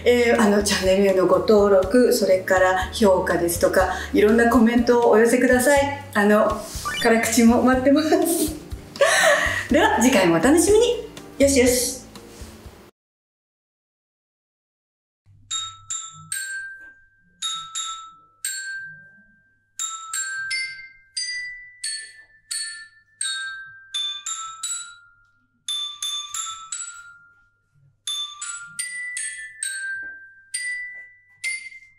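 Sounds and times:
mallet percussion tune: 0:00.0 - 0:12.0, 0:19.8 - 0:27.3, 0:28.1 - 0:31.9.

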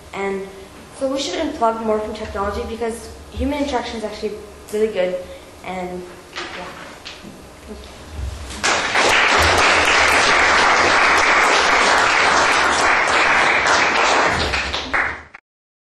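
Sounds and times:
audience applauding: 0:08.6 - 0:15.4.

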